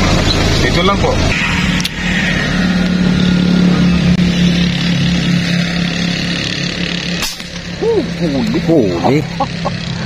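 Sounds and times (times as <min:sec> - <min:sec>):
vehicle engine humming: 0:00.0 - 0:10.0
sharp crack: 0:07.1 - 0:07.8.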